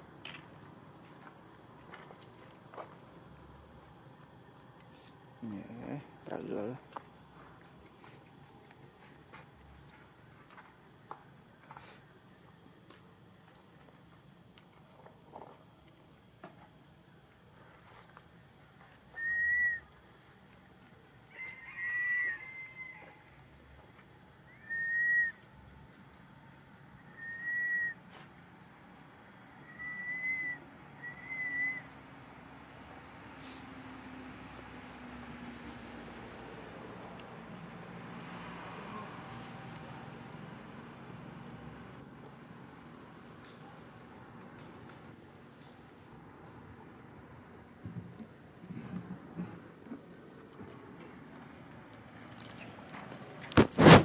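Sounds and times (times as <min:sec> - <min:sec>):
high-pitched insect drone: 0:00.0 - 0:45.0
macaque coo calls: 0:19.2 - 0:19.8, 0:21.5 - 0:22.7.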